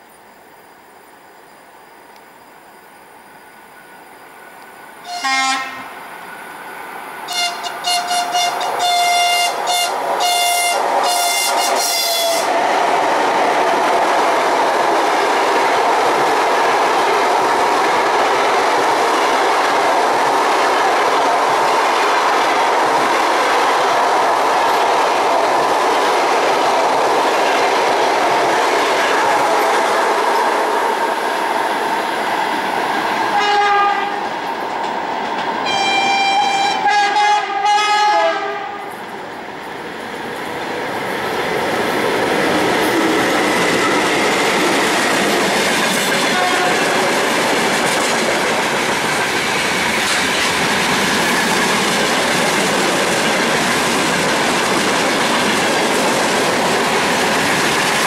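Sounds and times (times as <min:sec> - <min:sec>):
train coaches rumbling past: 0:03.4 - 0:58.0
locomotive horn toots: 0:05.0 - 0:06.0, 0:07.3 - 0:12.6, 0:33.4 - 0:34.2, 0:35.6 - 0:38.9, 0:46.3 - 0:47.0.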